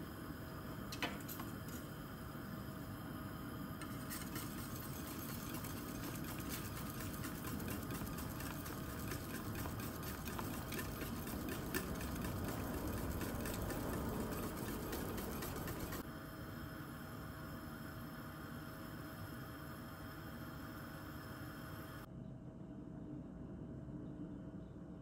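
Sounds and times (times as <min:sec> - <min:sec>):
liquid swishing: 0:03.8 - 0:16.0
whisk clicking against metal pot: 0:03.8 - 0:16.0.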